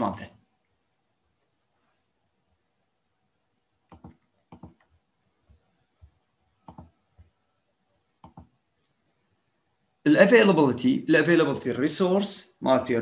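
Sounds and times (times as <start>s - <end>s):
computer mouse clicks: 3.9s - 7.4s, 8.2s - 8.6s.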